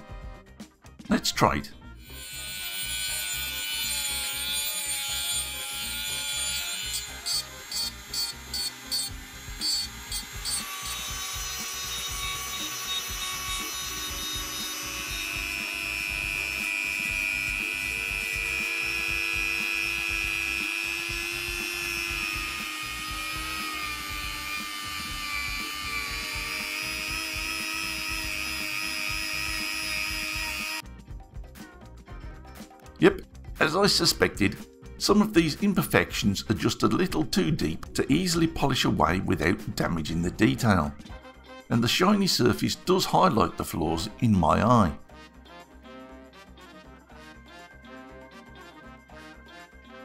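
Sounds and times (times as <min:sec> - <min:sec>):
rotary tool grinding metal: 0:02.0 - 0:30.8.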